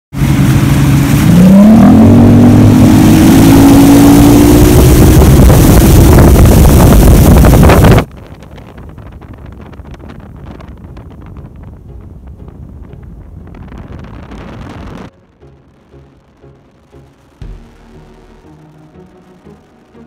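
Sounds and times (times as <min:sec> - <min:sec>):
outboard motor accelerating: 0:00.1 - 0:08.4, 0:10.4 - 0:20.0
wind noise on microphone: 0:00.2 - 0:15.4.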